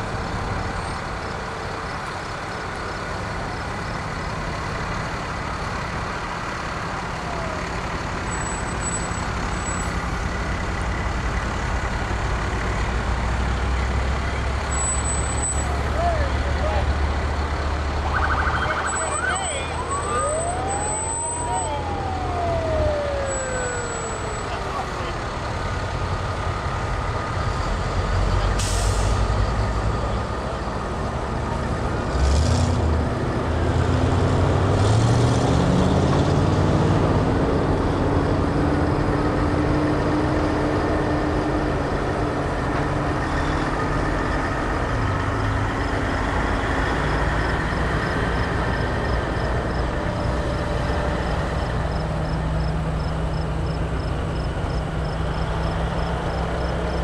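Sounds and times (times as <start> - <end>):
heavy trucks driving past: 0.0 - 57.0
truck engine rising in pitch: 6.9 - 57.0
air brakes hissing: 28.6 - 29.2.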